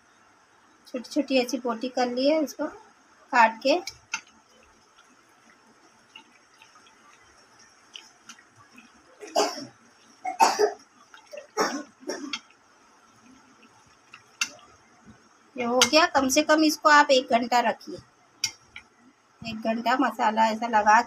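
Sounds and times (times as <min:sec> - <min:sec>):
hand squelching wet marinade: 0:03.8 - 0:09.2, 0:09.8 - 0:14.8.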